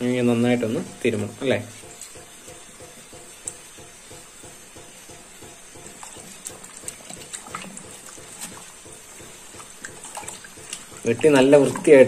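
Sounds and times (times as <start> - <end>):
hands scrubbing wet fish: 0.4 - 12.0.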